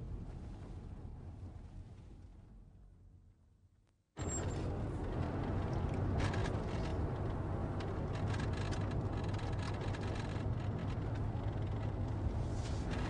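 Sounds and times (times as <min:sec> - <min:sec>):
car engine and road noise: 0:04.2 - 0:13.0.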